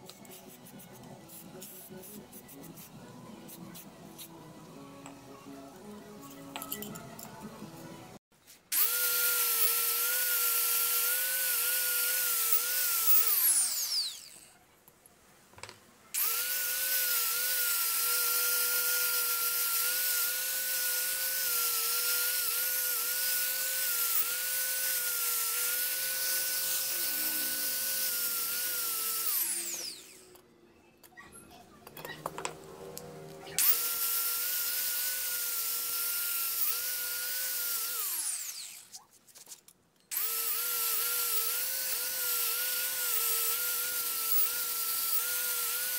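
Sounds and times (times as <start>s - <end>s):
angle grinder whining on steel: 8.7s - 14.6s, 16.2s - 30.4s, 31.9s - 39.0s, 40.1s - 45.9s.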